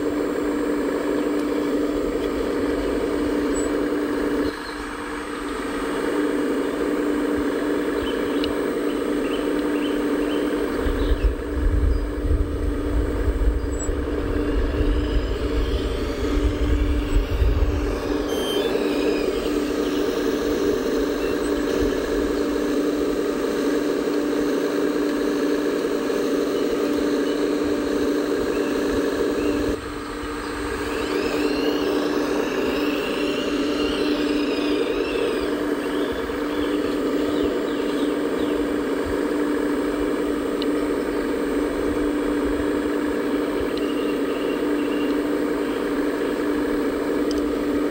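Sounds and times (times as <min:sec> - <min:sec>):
hydraulic pump humming: 0:00.0 - 0:47.9
high chirps: 0:13.8 - 0:21.6.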